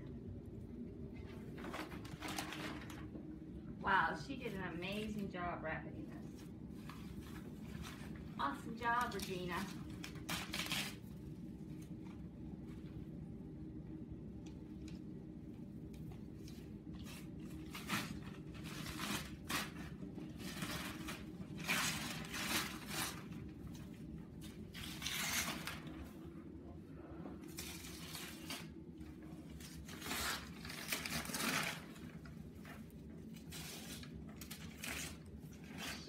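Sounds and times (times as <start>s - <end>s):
steady low hum: 0.0s - 36.0s
wrapping paper tearing and rustling: 1.5s - 3.1s, 6.3s - 12.2s, 16.3s - 26.2s, 27.4s - 36.0s.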